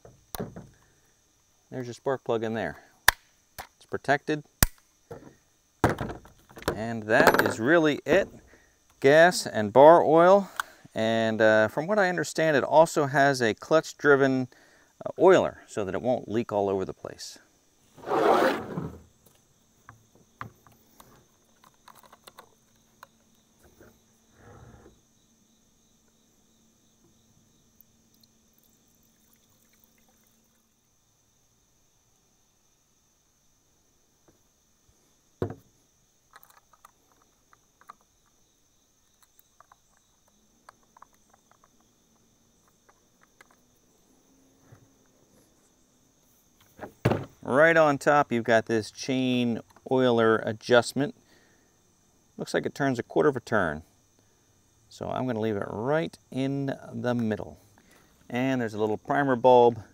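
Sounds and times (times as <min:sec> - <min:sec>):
thump: 0:00.0 - 0:00.8, 0:05.1 - 0:08.5, 0:35.4 - 0:35.7, 0:46.8 - 0:47.4
crickets chirping: 0:00.0 - 0:59.9.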